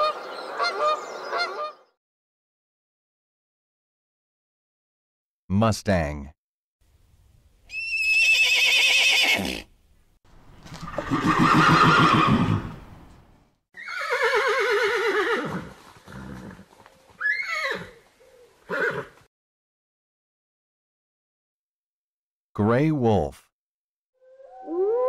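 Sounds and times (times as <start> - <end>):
horse whinnying: 7.7 - 9.7, 10.8 - 12.8, 13.8 - 18.0, 18.7 - 19.2.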